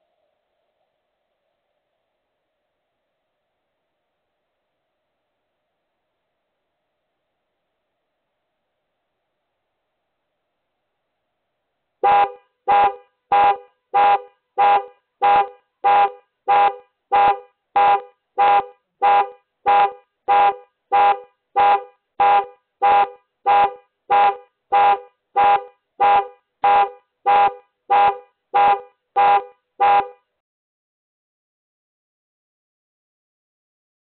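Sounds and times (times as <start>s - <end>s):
car alarm horn honks: 12.0s - 30.2s.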